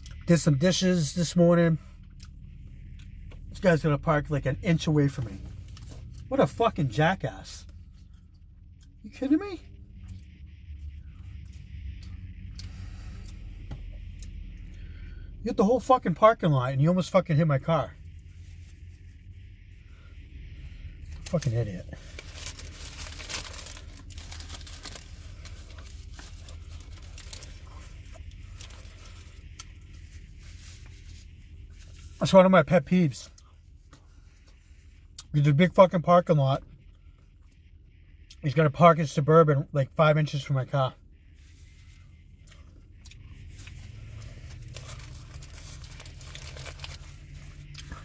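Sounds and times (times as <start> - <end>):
low hum inside car: 0.0 - 48.0
paper wrapper crinkling: 21.2 - 29.4, 43.5 - 47.6.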